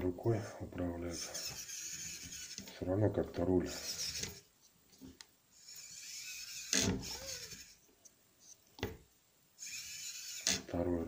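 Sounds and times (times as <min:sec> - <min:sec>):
small electric motor whining: 0:01.2 - 0:02.6, 0:03.7 - 0:04.4, 0:05.6 - 0:07.8, 0:09.6 - 0:10.7.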